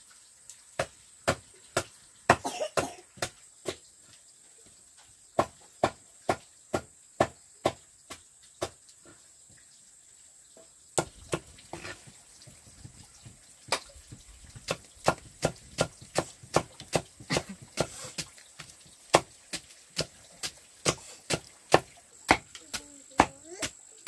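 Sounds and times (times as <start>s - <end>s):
machete chopping on wooden block: 0.8s - 3.4s, 5.4s - 8.8s, 11.0s - 11.5s, 14.7s - 18.0s, 19.1s - 23.8s.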